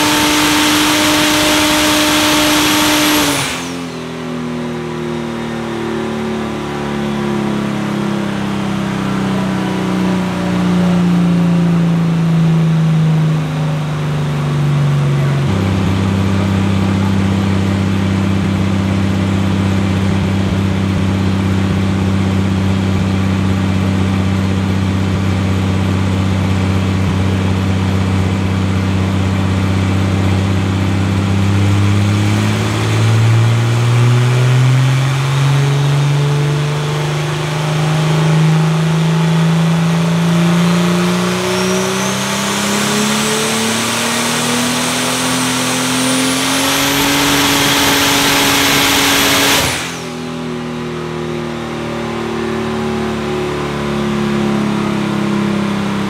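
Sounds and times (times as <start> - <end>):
car engine revving: 0.0 - 56.0
high whine: 41.2 - 54.2.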